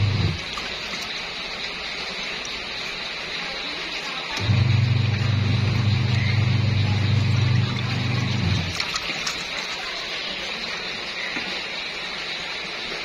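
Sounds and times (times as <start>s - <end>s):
washing machine motor humming: 0.0s - 12.7s
water swishing and dripping: 0.0s - 13.0s.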